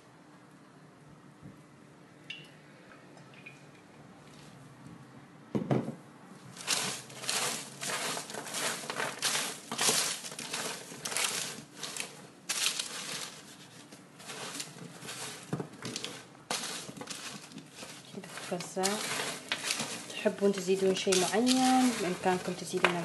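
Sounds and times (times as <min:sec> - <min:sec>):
baking paper crinkling: 0:06.5 - 0:23.0.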